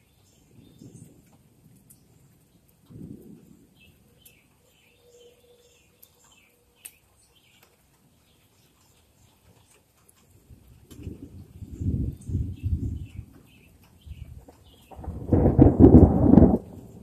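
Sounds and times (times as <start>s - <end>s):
low thunder rumble: 0.0s - 4.2s, 10.5s - 17.0s
bird chirps: 3.8s - 9.8s.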